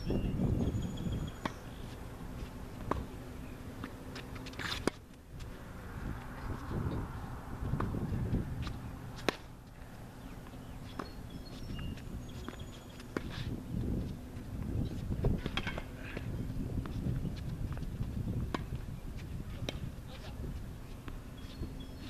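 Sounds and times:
wind rumble on microphone: 0:00.0 - 0:03.1, 0:05.3 - 0:09.2, 0:11.6 - 0:22.0
racket hitting ball: 0:02.8 - 0:03.2, 0:03.8 - 0:05.5, 0:08.6 - 0:09.5, 0:15.3 - 0:16.3.

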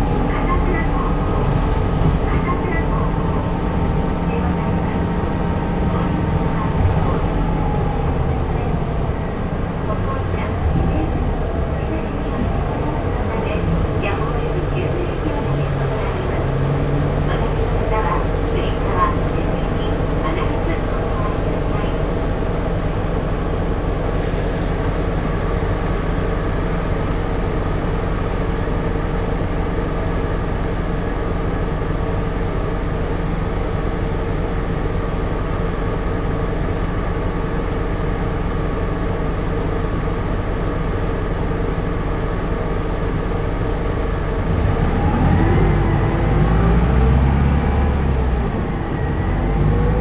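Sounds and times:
bus engine running: 0:00.0 - 0:50.0.

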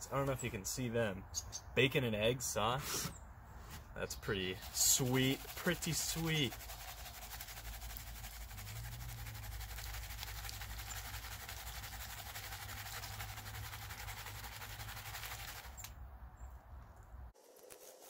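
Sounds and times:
gravel swishing in a gold pan: 0:04.5 - 0:15.8.

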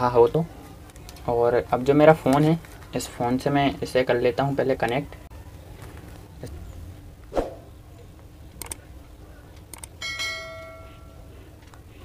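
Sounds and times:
light clicks: 0:08.5 - 0:08.8, 0:09.5 - 0:10.0.

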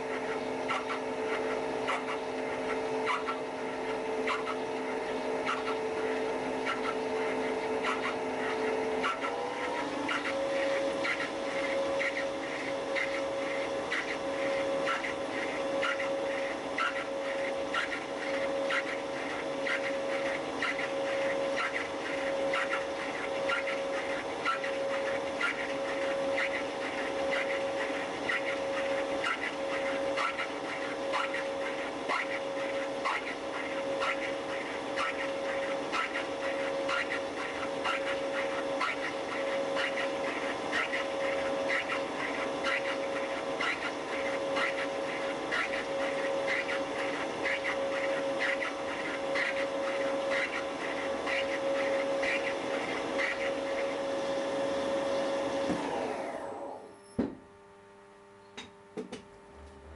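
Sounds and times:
rapid regular ticking of cutting: 0:00.0 - 0:55.6
machine humming: 0:00.0 - 0:59.9.

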